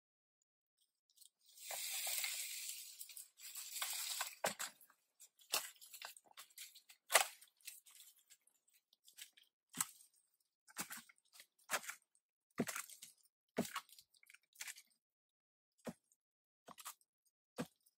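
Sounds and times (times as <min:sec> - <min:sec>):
wooden branch scraping and tearing: 0:01.4 - 0:08.3
branch cracking and snapping: 0:05.4 - 0:08.2.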